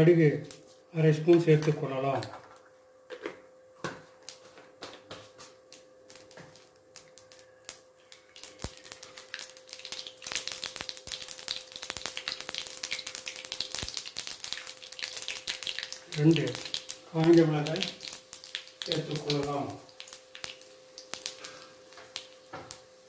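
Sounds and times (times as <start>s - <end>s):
seeds popping in hot oil: 5.7s - 23.0s.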